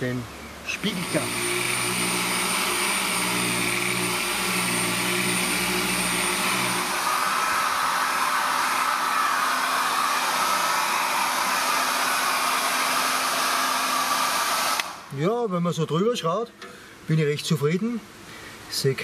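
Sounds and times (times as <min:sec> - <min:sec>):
angle grinder whining: 0:00.7 - 0:15.1.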